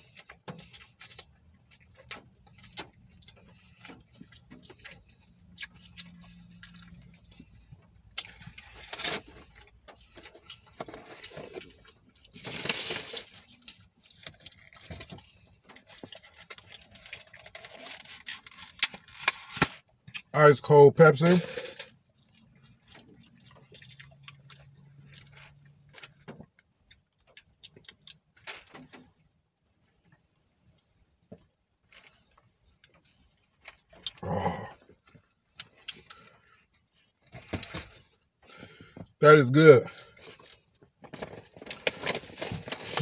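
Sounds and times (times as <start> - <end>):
chewing and lip smacking: 0.0 - 12.4, 22.0 - 25.8, 26.6 - 28.4, 34.8 - 37.2
food containers rustling: 2.2 - 19.8, 21.1 - 24.2, 40.1 - 43.0.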